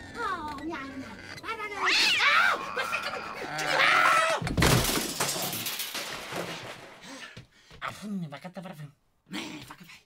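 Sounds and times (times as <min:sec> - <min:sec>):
loud crash of shattering: 0:04.5 - 0:07.0.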